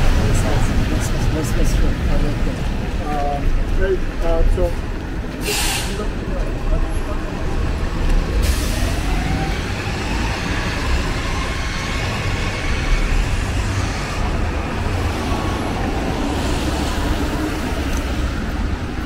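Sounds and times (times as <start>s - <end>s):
vehicle engine rumble: 0.0s - 19.0s
tyre hiss on wet pavement: 5.4s - 6.1s.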